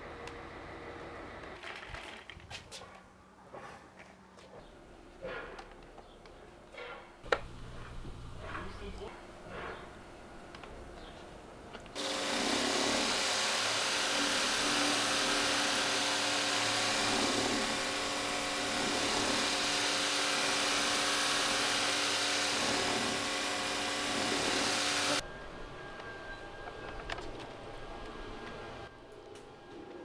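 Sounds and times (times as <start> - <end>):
pressure washer humming: 12.0 - 25.2.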